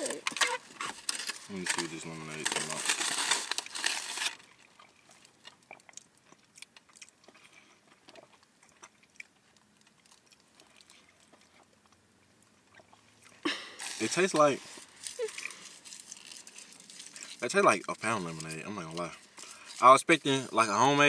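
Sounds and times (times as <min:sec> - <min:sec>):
chewing with clicks and smacks: 0:04.4 - 0:19.9.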